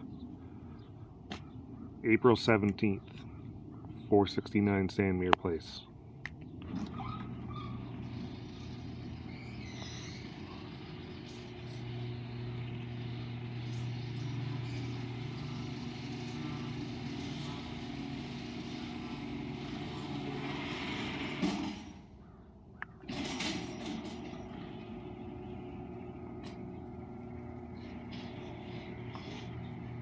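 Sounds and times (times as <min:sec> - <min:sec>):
garage door opener humming: 0:06.5 - 0:22.3, 0:23.0 - 0:30.0.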